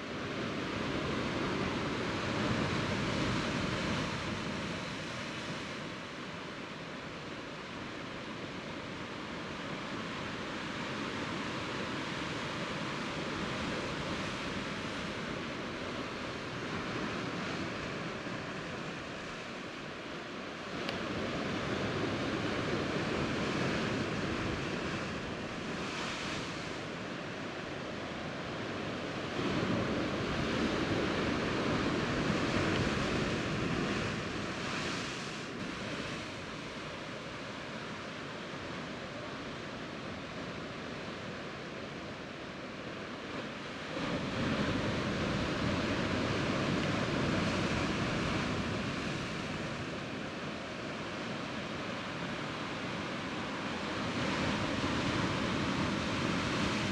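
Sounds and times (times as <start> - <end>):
sea surf washing against rocks: 43.2 - 56.9.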